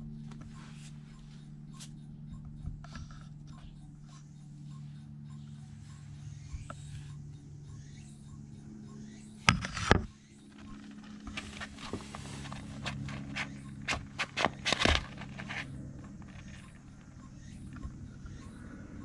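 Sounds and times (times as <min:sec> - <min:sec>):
rustle and clatter on wire rack: 0:09.5 - 0:17.8
paper bag crinkling: 0:10.9 - 0:16.6.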